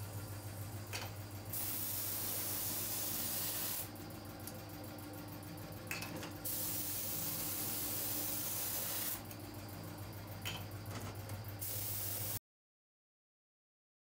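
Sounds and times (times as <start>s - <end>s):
low machine hum: 0.0s - 12.4s
paint spray gun hissing: 1.5s - 4.0s, 6.4s - 9.3s, 11.6s - 12.4s.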